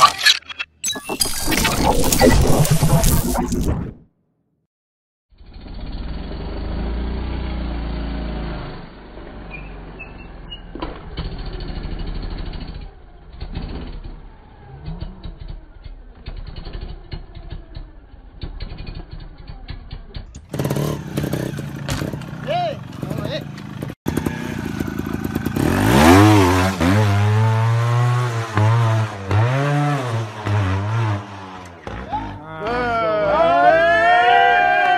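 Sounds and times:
motorcycle engine running: 11.1s - 29.6s.

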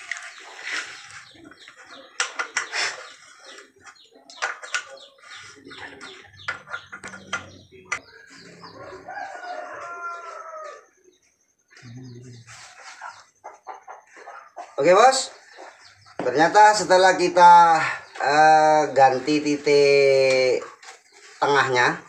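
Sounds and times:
rooster crowing: 8.6s - 11.0s.

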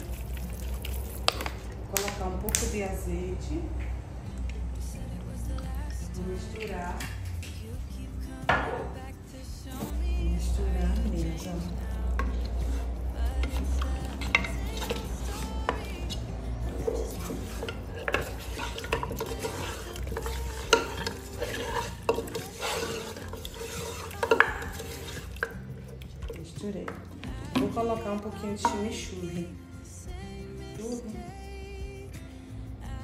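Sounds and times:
spatula scraping pot: 10.3s - 29.5s.

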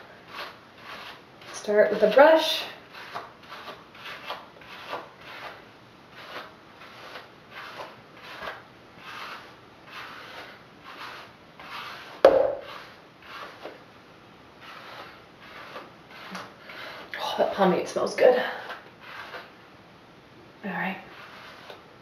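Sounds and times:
hairbrush strokes through hair: 0.0s - 5.6s, 6.2s - 13.8s, 14.6s - 19.5s, 20.7s - 21.8s
sharp knock: 12.2s - 12.6s.

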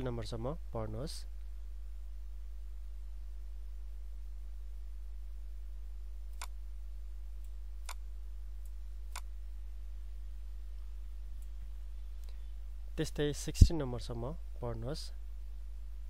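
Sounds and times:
low electrical hum: 0.0s - 16.0s
computer mouse clicking: 6.3s - 6.6s.

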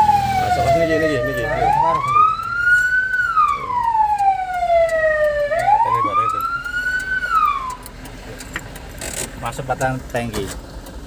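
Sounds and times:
fire engine siren wailing: 0.0s - 7.9s.

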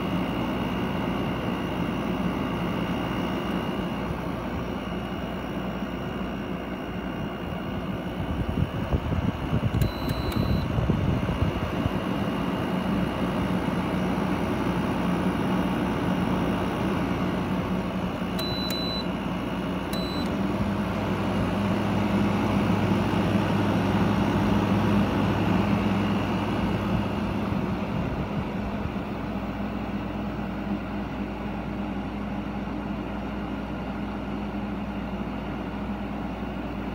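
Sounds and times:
low steady hum: 0.0s - 33.2s
air conditioner fan blowing: 0.0s - 36.9s
short high beeps: 9.8s - 10.7s, 18.4s - 19.1s, 20.0s - 20.3s.

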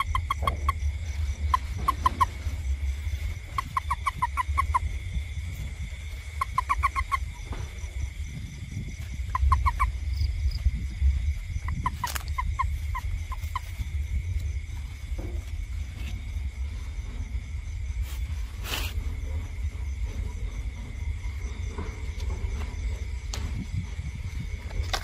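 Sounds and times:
quick chirping animal calls: 0.0s - 7.8s, 9.1s - 10.4s, 11.6s - 13.9s
high insect drone: 0.0s - 25.0s
low rumble: 0.0s - 25.0s.

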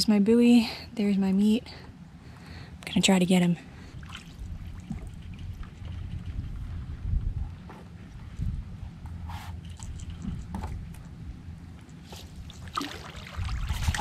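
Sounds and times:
wind rumble on microphone: 3.8s - 14.0s
splash and dripping water: 4.0s - 6.0s, 12.1s - 14.0s
water lapping against paddleboard: 12.0s - 14.0s.

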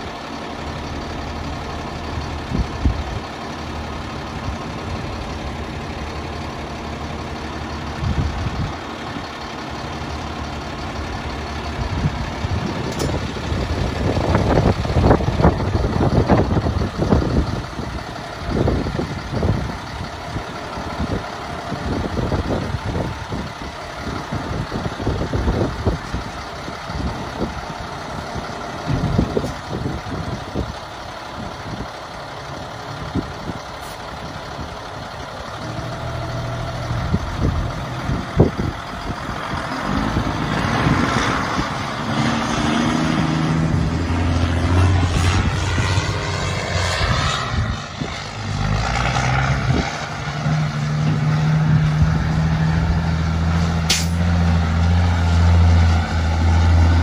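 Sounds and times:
truck engine idling: 0.0s - 57.0s.

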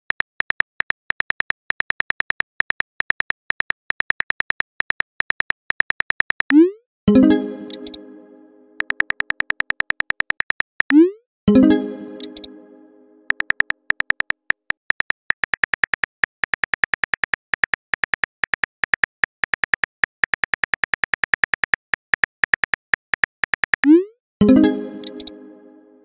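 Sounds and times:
keyboard tap clicks: 7.7s - 8.0s, 8.8s - 10.9s, 12.2s - 12.5s, 13.3s - 23.9s, 25.0s - 25.4s.

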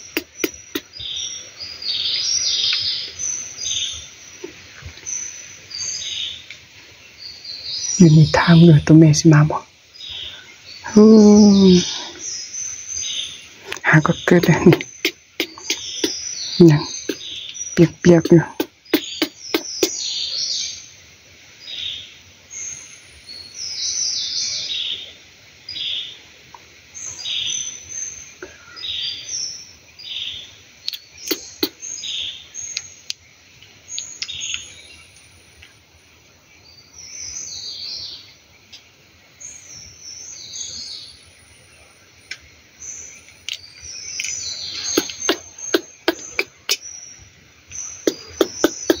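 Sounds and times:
baby monkey chirping squeaks: 0.0s - 0.9s, 14.0s - 20.0s, 30.9s - 31.8s, 44.8s - 46.8s, 48.0s - 49.0s
sharp clicks: 0.0s - 0.9s.

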